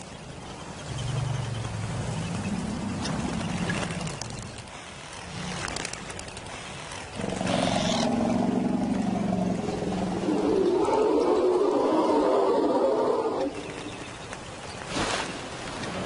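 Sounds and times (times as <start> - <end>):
large animals growling: 7.1 - 13.9.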